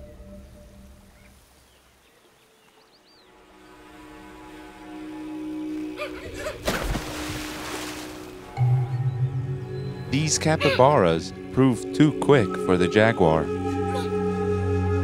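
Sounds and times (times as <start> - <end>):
background music with held notes: 0.0 - 1.4, 3.2 - 15.0
loud rushing water splash: 6.6 - 8.5
faint bird chirps: 8.6 - 10.2.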